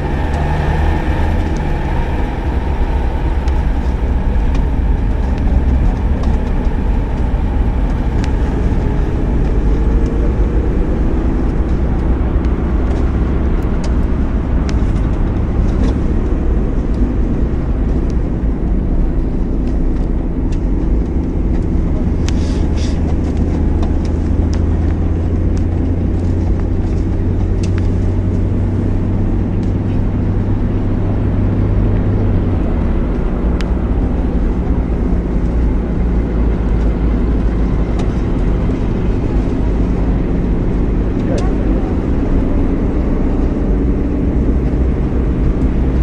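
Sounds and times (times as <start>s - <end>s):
road noise: 0.0s - 46.0s
vehicle engine low rumble: 0.0s - 46.0s.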